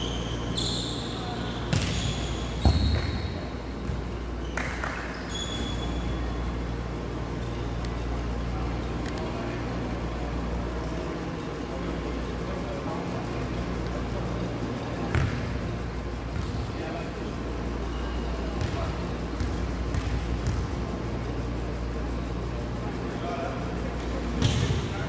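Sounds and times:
short high squeaks: 0.0 - 3.3, 4.4 - 6.2
low hum of sports hall: 0.0 - 25.0.

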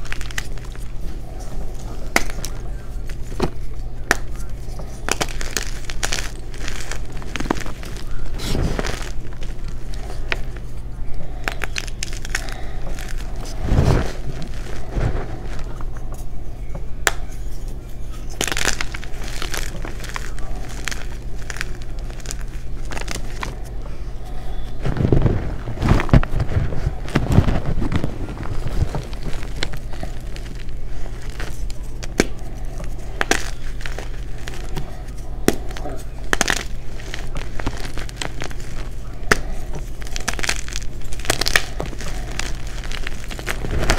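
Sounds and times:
hands crushing chalk chunks: 0.0 - 43.9.

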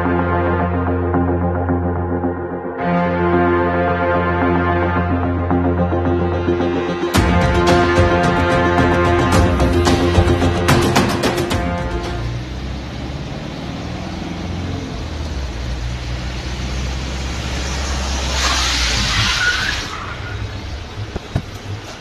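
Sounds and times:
car engine hum: 5.1 - 22.0
tyres hissing on wet tarmac: 14.5 - 22.0.

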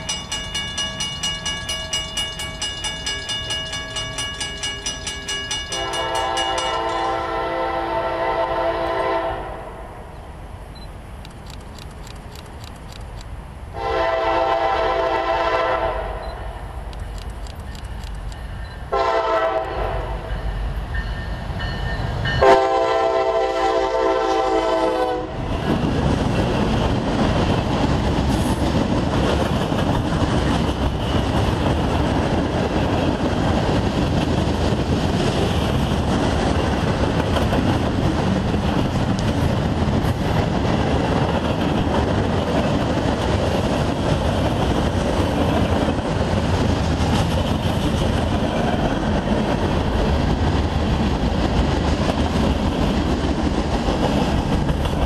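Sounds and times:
locomotive air horn: 5.8 - 9.8, 13.8 - 16.2, 18.9 - 20.3, 22.4 - 25.4
train wheels clicking over rail joints: 11.2 - 13.4, 16.8 - 18.8, 25.6 - 55.0.

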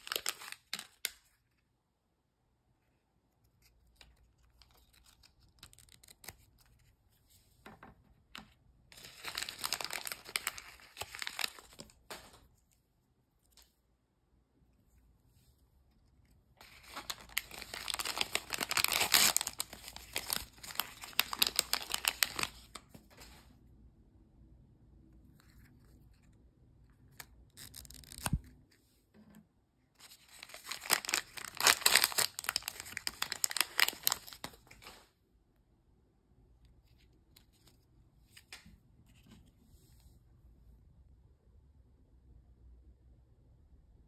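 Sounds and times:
paper crackling and rustling: 0.0 - 1.5, 3.6 - 12.6, 16.6 - 23.5, 27.1 - 28.7, 30.0 - 35.1.

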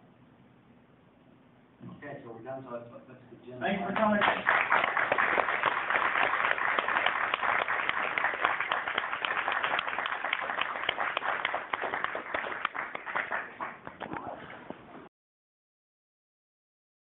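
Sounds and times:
audience applauding: 3.9 - 14.0.

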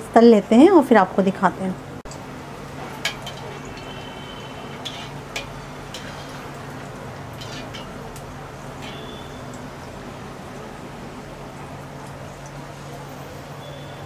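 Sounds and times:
food sizzling in hot oil: 2.1 - 14.0
metal spoon scraping pan: 3.0 - 8.2, 8.8 - 9.6.

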